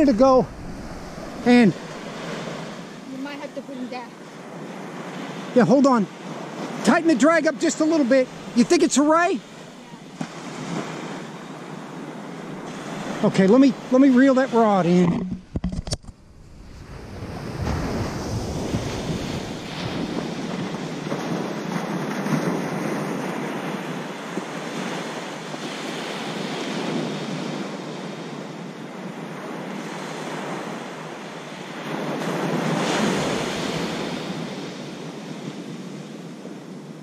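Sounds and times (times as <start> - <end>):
wind buffeting microphone: 0.0 - 3.6, 6.3 - 25.2
ocean surf breaking: 0.0 - 37.0.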